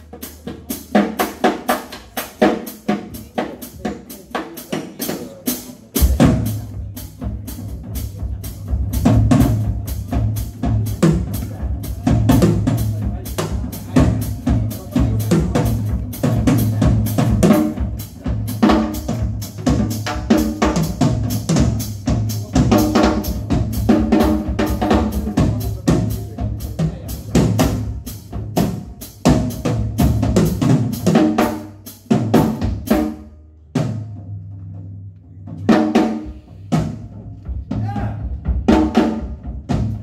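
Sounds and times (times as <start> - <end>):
drum kit solo: 0.0 - 40.0.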